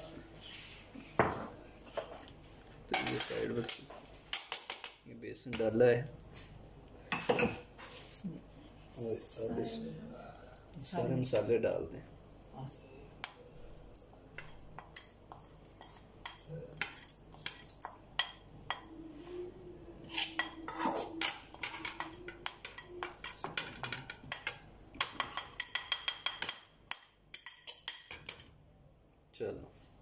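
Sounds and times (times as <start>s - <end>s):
metal spoon clinking on glass and steel: 14.8s - 18.9s, 20.2s - 28.5s.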